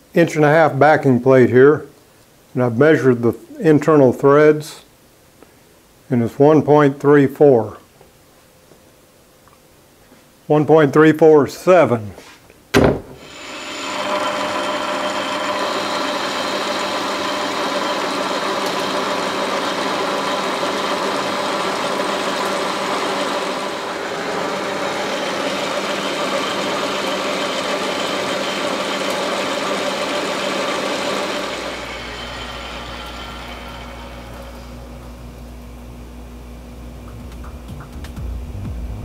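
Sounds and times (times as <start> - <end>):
metal lathe hum: 13.2 - 36.1.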